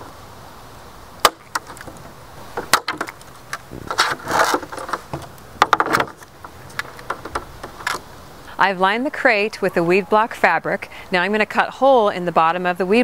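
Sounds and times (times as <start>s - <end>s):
plastic ribs snapping: 1.2s - 2.0s, 2.6s - 8.1s
rubbing and rustling: 1.4s - 8.3s.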